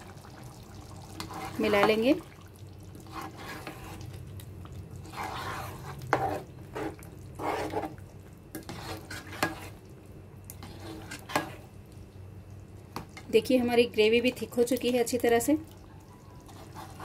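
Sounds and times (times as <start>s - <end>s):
spatula scraping a pan: 1.2s - 2.0s, 3.0s - 4.2s, 5.0s - 9.8s, 10.6s - 11.7s, 16.4s - 17.0s.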